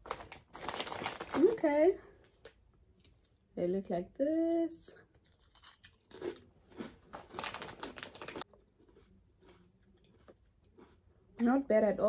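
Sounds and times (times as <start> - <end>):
potato chip crunching: 0.0 - 1.6, 5.1 - 11.0.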